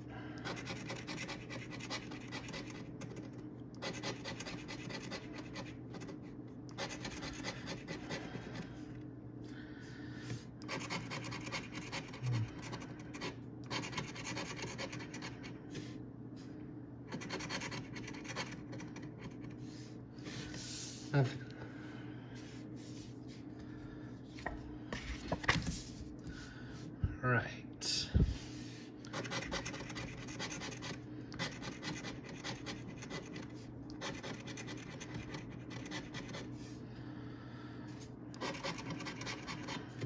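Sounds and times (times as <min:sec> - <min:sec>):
coin scratching lottery ticket: 0:00.4 - 0:08.3, 0:10.7 - 0:15.4, 0:17.1 - 0:19.6, 0:29.1 - 0:36.5, 0:38.4 - 0:39.9.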